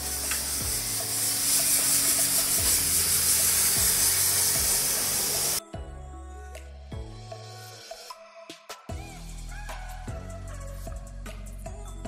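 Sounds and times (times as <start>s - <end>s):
pressure washer spray hissing: 0.0s - 5.6s
background music with beat: 0.0s - 12.0s.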